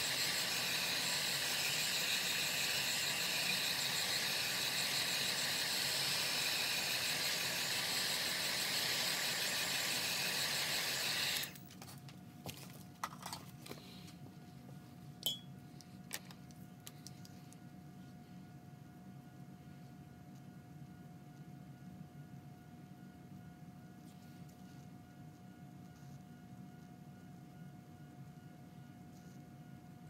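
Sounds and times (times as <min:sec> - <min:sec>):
heat gun blowing: 0:00.0 - 0:11.6.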